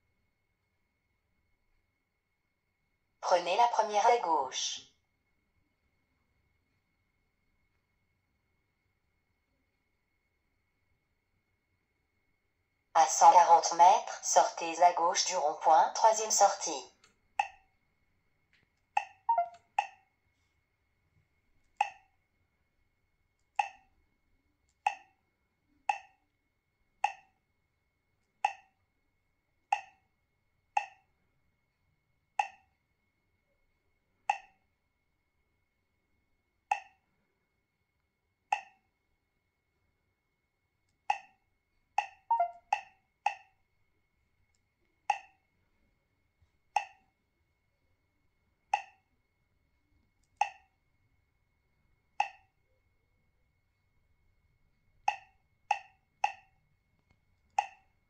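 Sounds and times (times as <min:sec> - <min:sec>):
electronic key-press pop: 0:17.4 - 0:17.6, 0:19.0 - 0:20.0, 0:21.8 - 0:22.0, 0:24.9 - 0:25.1, 0:25.9 - 0:26.1, 0:29.7 - 0:30.0, 0:30.8 - 0:31.0, 0:34.3 - 0:34.5, 0:36.7 - 0:37.0, 0:38.5 - 0:38.8, 0:41.1 - 0:41.3, 0:42.0 - 0:43.5, 0:45.1 - 0:45.4, 0:55.1 - 0:56.5, 0:57.6 - 0:57.8.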